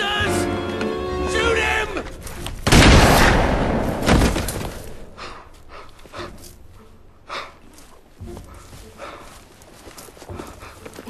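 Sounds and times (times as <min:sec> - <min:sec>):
gunshot ringing: 0:02.7 - 0:04.5.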